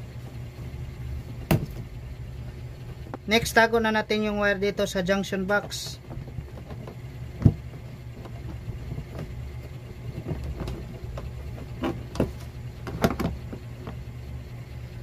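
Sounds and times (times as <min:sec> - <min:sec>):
steady low hum: 0:00.0 - 0:15.0
plastic and wire knocks and clicks: 0:05.5 - 0:14.0.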